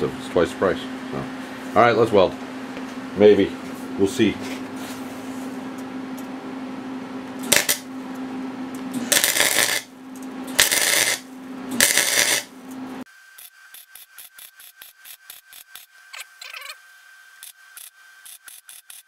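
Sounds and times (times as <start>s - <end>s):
welder hum: 4.0s - 19.0s
welding arc crackling: 7.4s - 7.9s, 9.0s - 12.6s, 17.4s - 19.0s.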